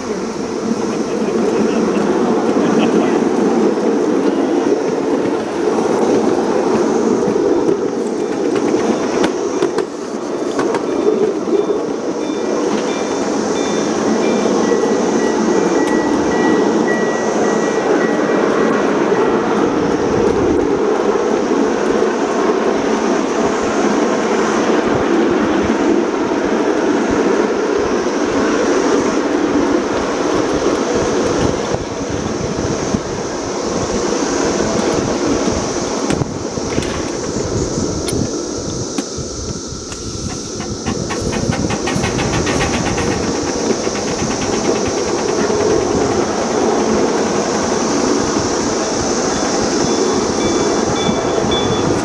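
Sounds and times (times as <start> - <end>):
small wheels rumbling on rail: 0.0 - 52.0
wheels clicking over rail joints: 0.0 - 52.0.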